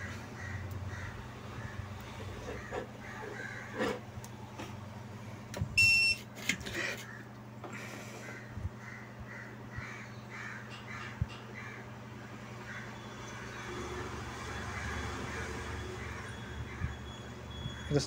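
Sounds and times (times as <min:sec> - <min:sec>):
low electrical hum: 0:00.0 - 0:18.0
electronic beep: 0:05.8 - 0:06.2, 0:16.3 - 0:18.0.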